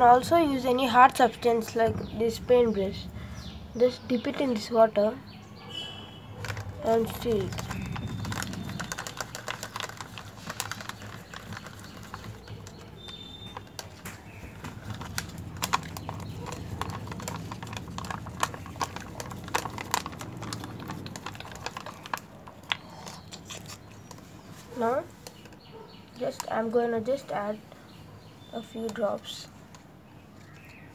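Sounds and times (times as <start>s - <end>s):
straws clicking against plastic cup: 6.4s - 27.8s, 28.6s - 29.1s.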